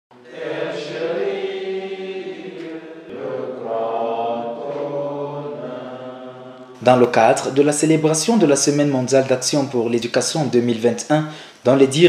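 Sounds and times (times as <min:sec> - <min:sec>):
group singing long held notes: 0:00.1 - 0:06.9.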